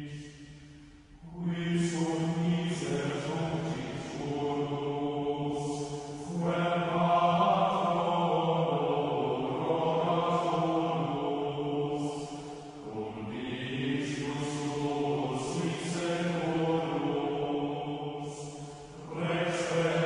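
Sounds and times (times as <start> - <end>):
voices singing slow chant: 0.0 - 20.0.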